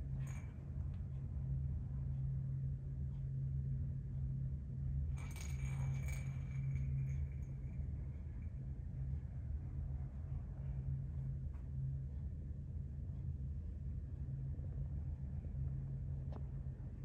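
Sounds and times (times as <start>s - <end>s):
steady low hum: 0.0s - 17.0s
metallic jingling and clinking: 5.2s - 8.6s.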